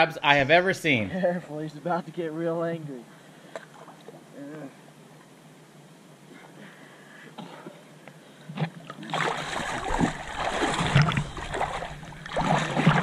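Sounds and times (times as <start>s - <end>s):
water splashing and churning: 8.6s - 13.0s.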